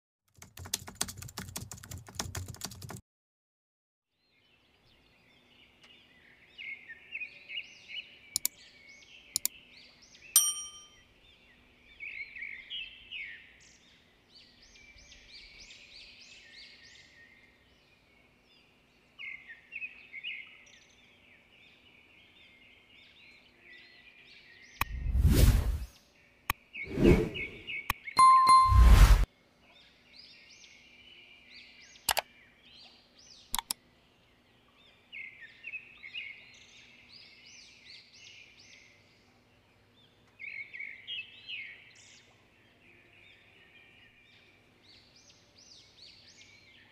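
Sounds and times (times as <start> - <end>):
mouse clicks: 8.3 - 8.6, 9.3 - 9.6, 33.5 - 33.8
bell-like notification ding: 10.4 - 11.0, 28.2 - 29.2
birds chirping: 26.6 - 29.2.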